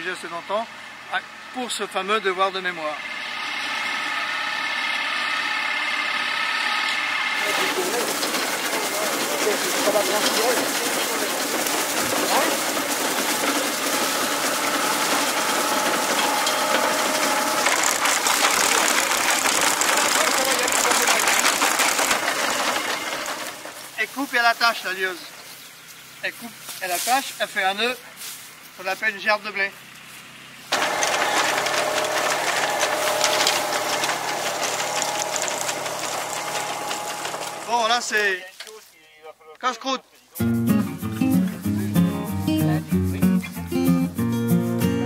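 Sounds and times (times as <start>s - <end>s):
engine running: 0.0s - 38.4s
grain binder mechanical clatter: 6.8s - 25.5s, 30.7s - 38.8s.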